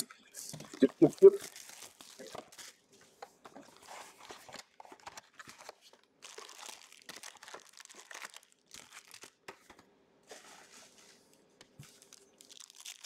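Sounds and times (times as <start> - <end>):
crinkling of cards and wrappers: 0.4 - 13.0.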